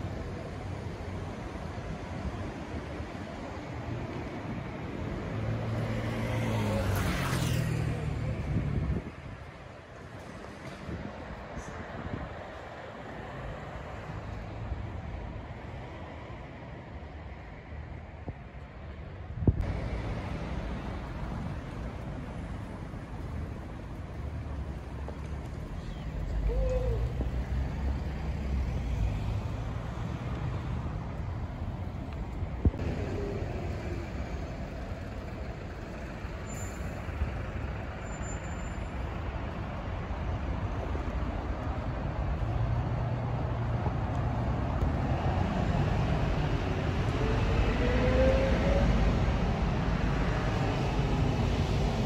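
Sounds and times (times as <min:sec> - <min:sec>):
passing motor vehicles: 0:00.0 - 0:52.0.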